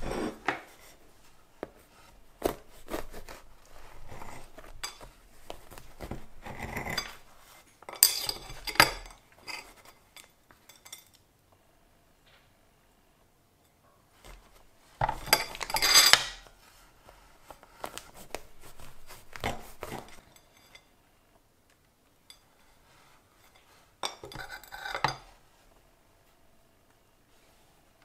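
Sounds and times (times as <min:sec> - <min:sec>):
knife clinking and scraping on plate: 0:04.1 - 0:05.1, 0:06.4 - 0:11.2, 0:15.0 - 0:16.5, 0:19.4 - 0:20.9, 0:23.4 - 0:25.3.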